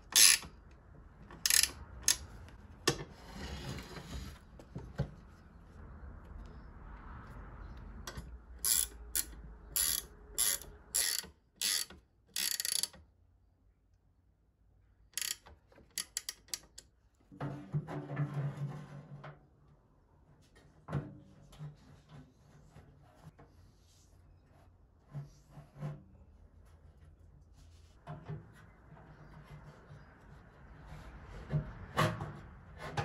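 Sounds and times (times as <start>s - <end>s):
ratcheting spanner clicking: 0.0s - 0.5s, 1.4s - 2.3s, 8.6s - 13.0s, 15.2s - 16.8s.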